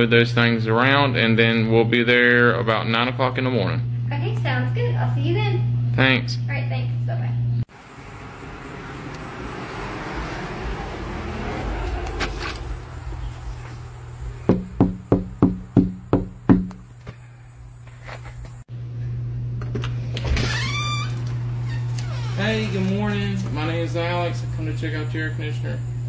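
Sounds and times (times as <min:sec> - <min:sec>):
knocking on glass door panel: 0:14.5 - 0:16.8.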